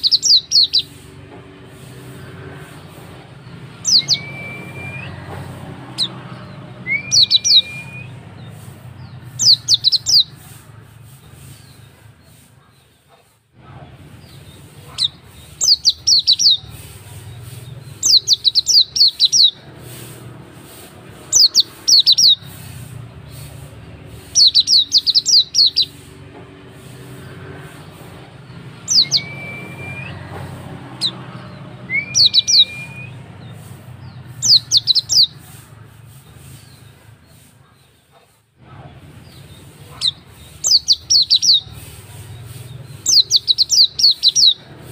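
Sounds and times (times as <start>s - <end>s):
birds chirping rapidly: 0.0s - 44.9s
short clear whistles: 3.9s - 5.2s, 6.8s - 8.2s, 28.9s - 30.2s, 31.9s - 33.2s.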